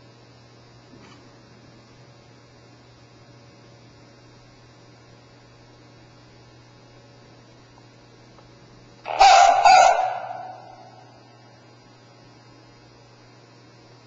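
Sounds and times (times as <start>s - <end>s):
low electrical hum: 0.0s - 14.0s
robot dog bark from speaker: 9.1s - 11.1s.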